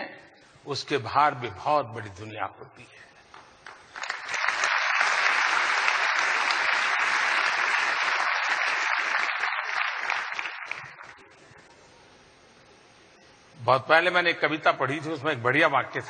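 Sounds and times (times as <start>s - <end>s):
audience applauding: 3.6s - 11.4s.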